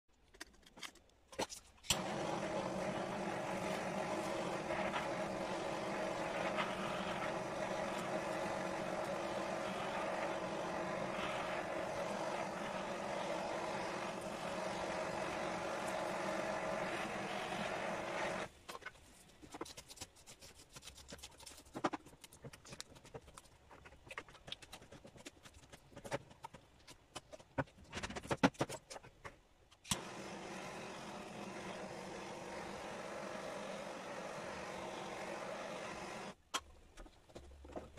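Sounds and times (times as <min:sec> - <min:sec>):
blow torch running: 0:01.9 - 0:18.5, 0:29.9 - 0:36.4.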